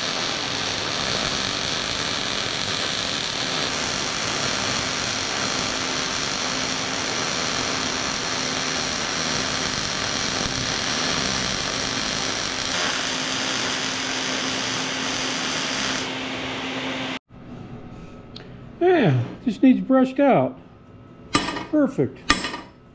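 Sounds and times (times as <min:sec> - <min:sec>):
welding arc crackling: 0:00.0 - 0:16.2.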